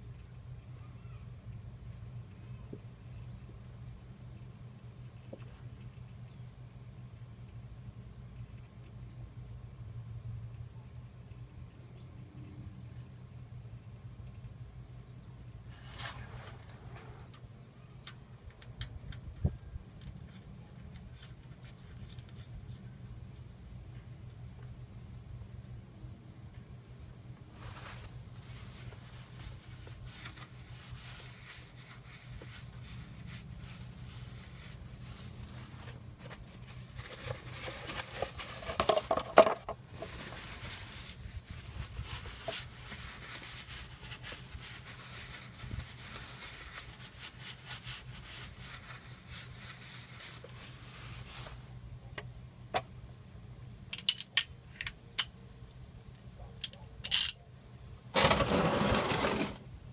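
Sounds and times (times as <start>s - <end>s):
metal clinks and scraping: 56.6s - 57.4s.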